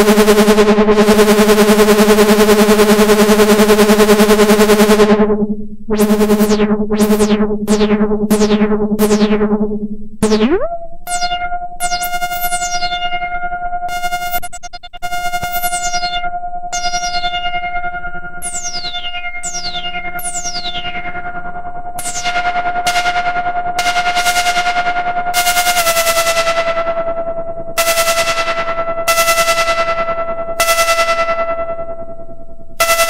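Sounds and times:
synthesizer buzzing tone: 0.0 - 24.8
synthesizer short repeated notes: 0.0 - 24.9
synthesizer drone: 0.0 - 25.1.

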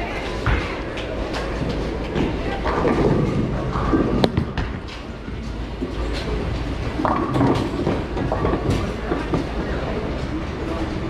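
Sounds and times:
bowling ball rolling: 0.4 - 11.0.

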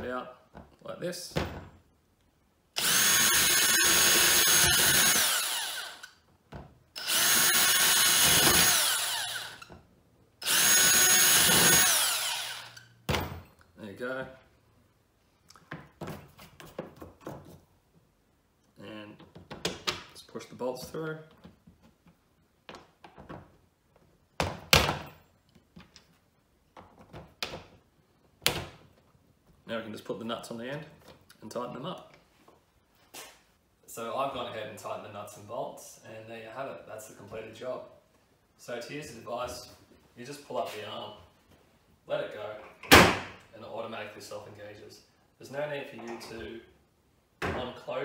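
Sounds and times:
cordless drill drilling plastic: 2.8 - 6.2, 7.0 - 9.7, 10.4 - 12.9.

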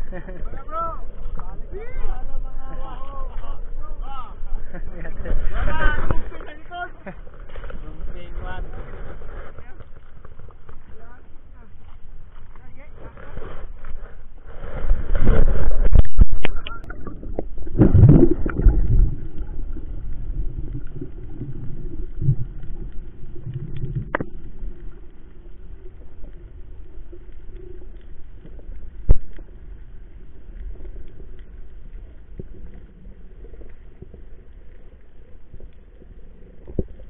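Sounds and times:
low underwater hum: 0.0 - 37.0
rush of water: 13.0 - 37.0.

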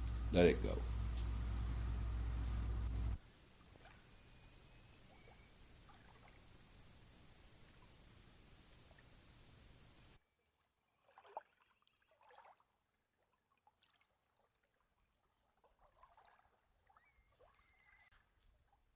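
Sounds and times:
steady hiss: 0.0 - 10.2
small waves lapping on shore: 0.0 - 12.8.

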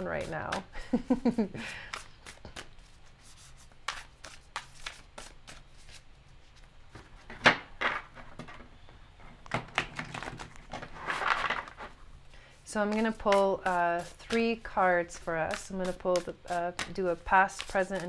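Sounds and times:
cards being shuffled: 1.8 - 8.0, 9.8 - 12.0.

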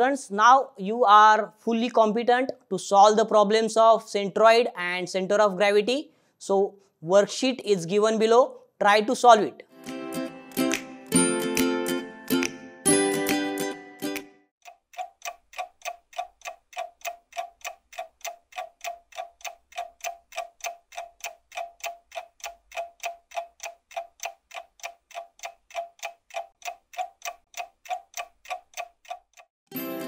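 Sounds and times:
clock ticking: 14.6 - 29.5.

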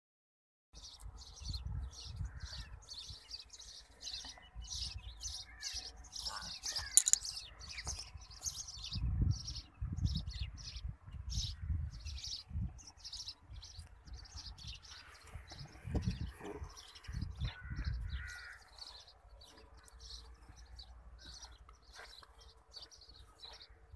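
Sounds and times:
small birds chirping: 0.8 - 23.9
low rumbling on microphone: 15.4 - 18.5.

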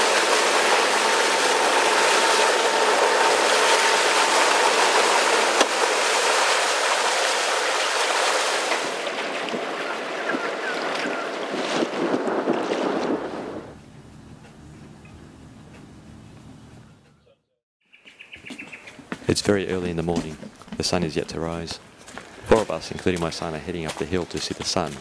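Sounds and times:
water rushing along a hull: 0.0 - 14.0
wind on microphone: 8.8 - 15.3.

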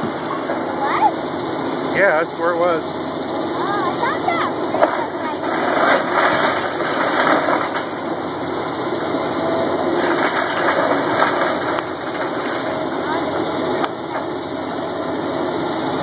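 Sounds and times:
excavator diesel engine under load: 0.0 - 16.0
wood and debris crunching: 4.7 - 8.2, 9.9 - 13.2.

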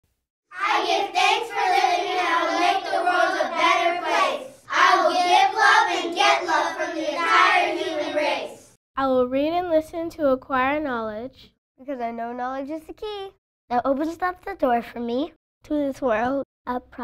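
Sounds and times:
children's voices in unison: 0.5 - 8.8.

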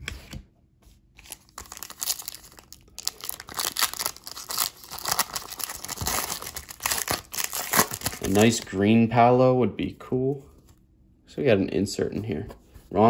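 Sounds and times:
foil wrapper crinkling: 1.2 - 8.7.

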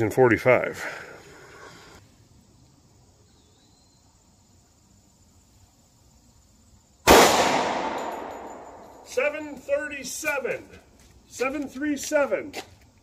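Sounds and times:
pistol shot with echo: 7.1 - 9.1.

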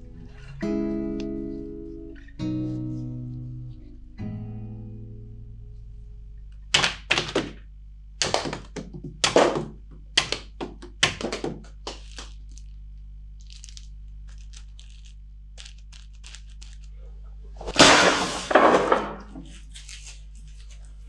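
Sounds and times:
blade striking targets: 17.7 - 19.2.

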